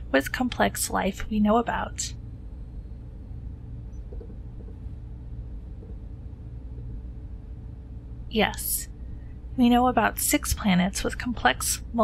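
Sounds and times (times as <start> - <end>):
low hum and rumble: 0.0 - 12.0.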